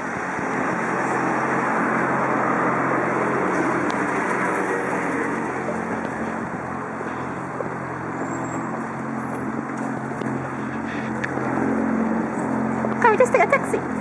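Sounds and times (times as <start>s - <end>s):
road-noise hiss: 0.0s - 14.0s
vehicle engines humming: 0.0s - 14.0s.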